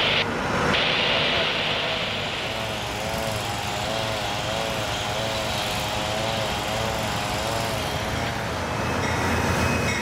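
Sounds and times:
small engine running wavering: 0:01.5 - 0:10.0.

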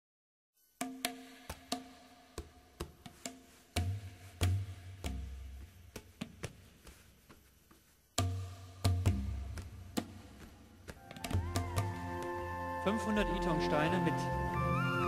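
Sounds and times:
deep drum beats: 0:08.2 - 0:12.2.

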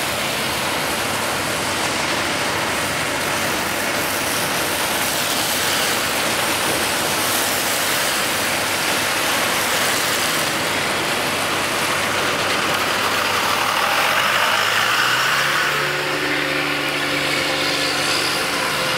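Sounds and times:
road noise on wet road: 0:00.0 - 0:18.9
vehicle engine: 0:00.0 - 0:18.9.

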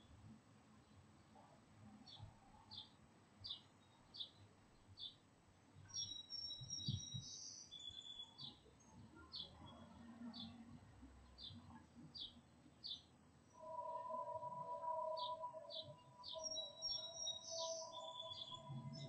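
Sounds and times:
whistled bird notes: 0:05.9 - 0:08.5, 0:13.5 - 0:19.0.

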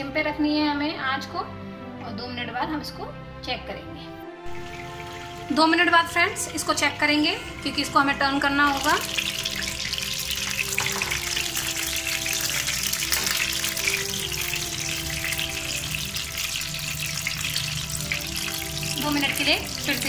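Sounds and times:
soft background music: 0:00.0 - 0:20.0
vegetables sizzling in hot oil: 0:04.5 - 0:20.0.

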